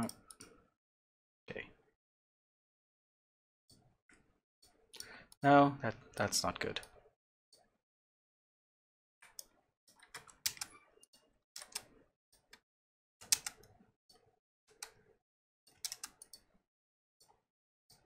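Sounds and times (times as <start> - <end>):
mouse and keyboard clicks: 9.2 - 12.6, 13.2 - 13.7, 15.7 - 16.5.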